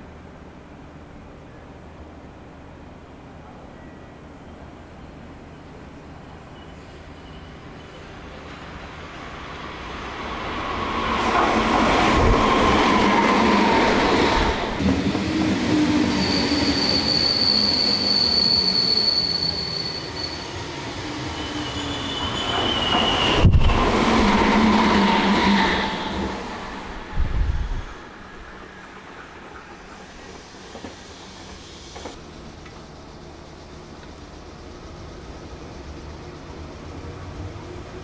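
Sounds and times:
electric train rumbling by: 0.0 - 38.0
train wheel squeal: 3.7 - 26.4, 28.6 - 32.2.

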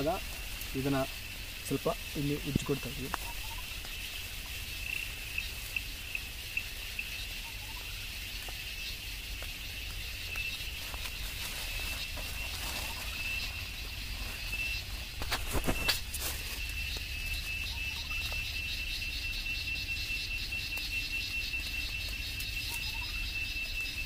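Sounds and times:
insects trilling: 0.0 - 24.0.

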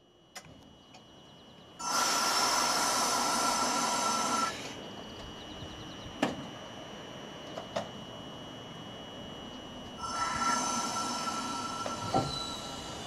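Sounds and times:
tram equipment humming: 0.0 - 13.0
loud hiss with whistling tones: 1.8 - 4.8, 10.0 - 13.0.

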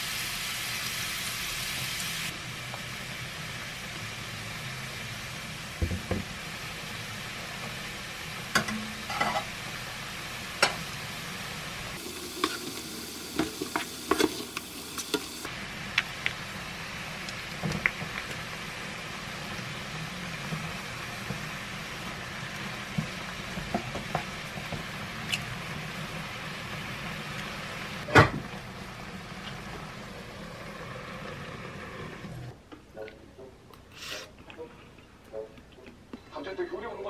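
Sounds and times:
sauce sizzling in a frying pan: 0.0 - 32.2
spatula tapping and scraping pan: 13.4 - 15.3.

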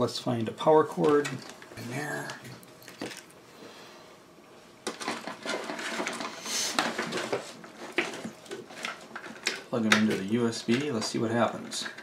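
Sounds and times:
small parts clicking and rustling: 1.0 - 3.4, 4.8 - 12.0.

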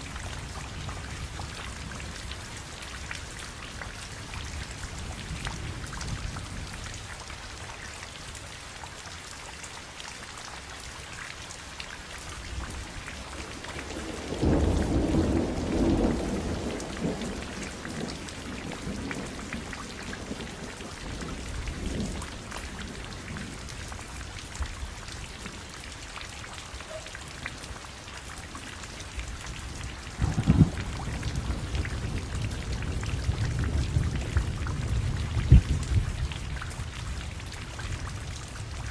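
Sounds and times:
rain drops ticking: 0.0 - 38.9
thunder rumbling: 12.9 - 24.8, 29.5 - 38.9.

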